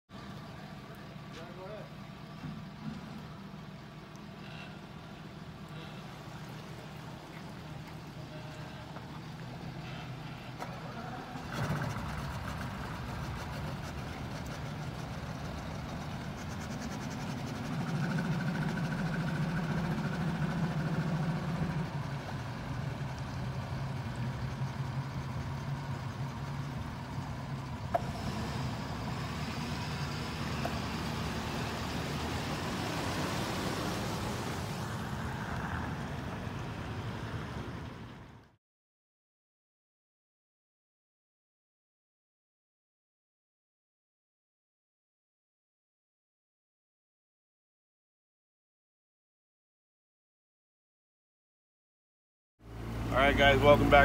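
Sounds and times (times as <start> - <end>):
outboard motor idling: 0.1 - 38.4, 52.6 - 54.0
truck engine running: 0.1 - 38.5, 52.7 - 54.0.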